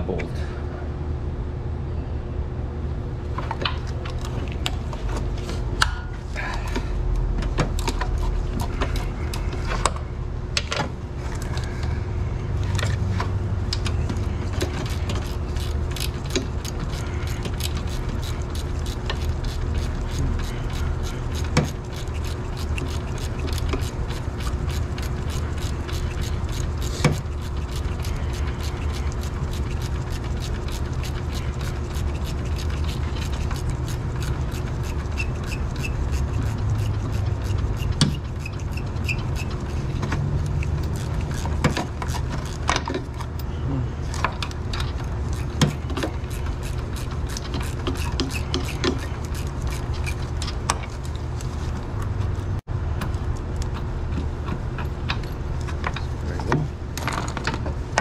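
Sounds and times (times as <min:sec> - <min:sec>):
ratchet wrench clicking: 0:14.6 - 0:43.4, 0:44.8 - 0:51.0.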